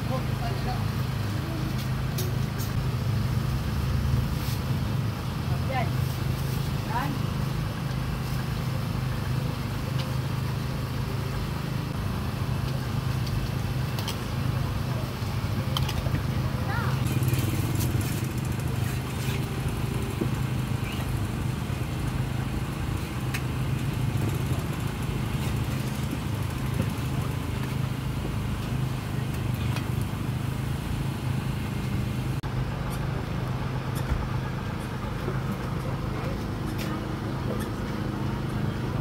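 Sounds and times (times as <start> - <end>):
outdoor background noise: 0.0 - 39.0
small engine running: 13.5 - 39.0.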